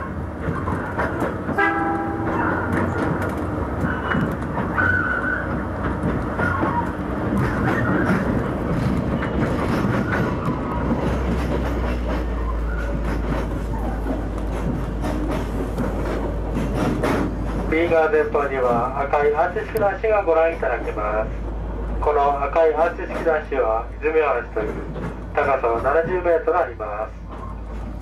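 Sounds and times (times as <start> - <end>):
train wheels clattering on track: 0.0 - 28.0
wheel squeals: 3.8 - 14.1.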